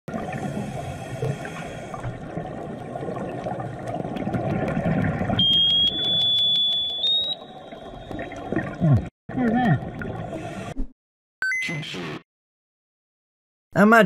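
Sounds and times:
underwater rumble and hiss: 0.1 - 5.4.

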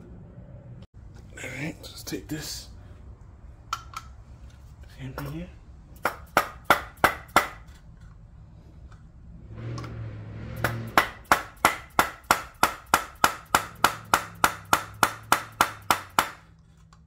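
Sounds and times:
hammer tapping on metal: 6.0 - 7.6, 10.6 - 16.4.

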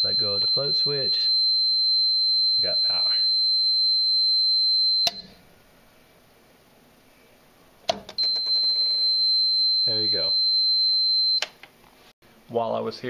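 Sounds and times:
multimeter continuity beep tone: 0.0 - 5.4, 8.2 - 11.4.

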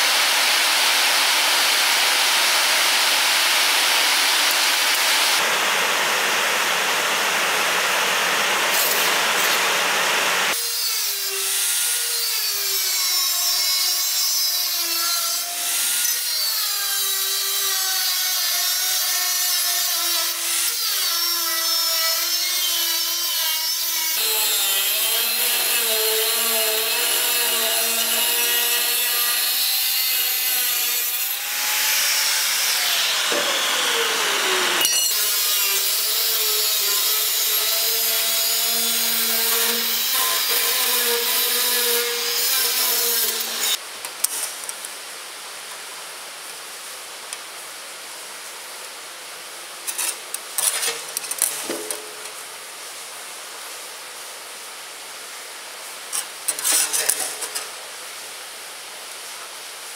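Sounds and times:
angle grinder cutting steel: 0.1 - 5.4, 8.6 - 43.8.

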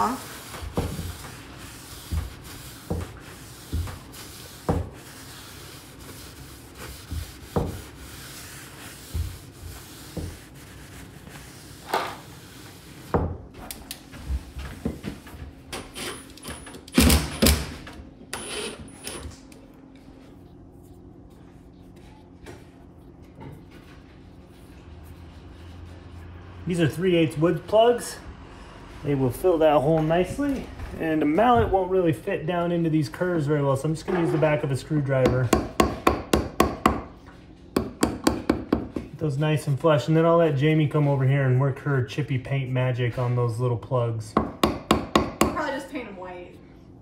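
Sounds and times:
paper towel rubbing wood: 0.0 - 13.2.

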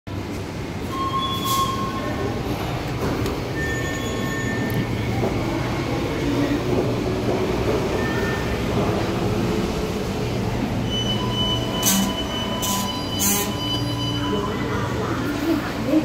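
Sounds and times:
train rumble: 0.1 - 16.0
high-pitched train squeals: 0.8 - 2.3, 3.5 - 5.0, 10.8 - 14.9.

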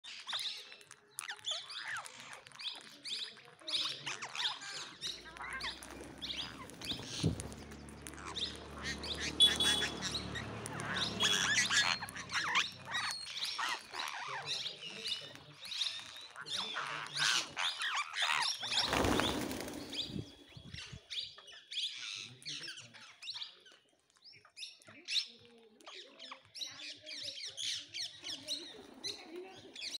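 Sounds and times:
parrots squawking and chirping: 1.2 - 20.8.

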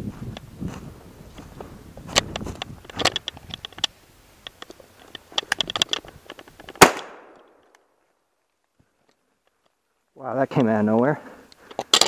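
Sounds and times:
shotgun blast: 6.8 - 7.4.

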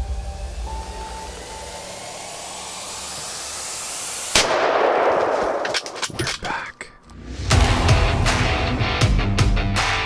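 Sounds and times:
rising hiss: 0.0 - 5.3.

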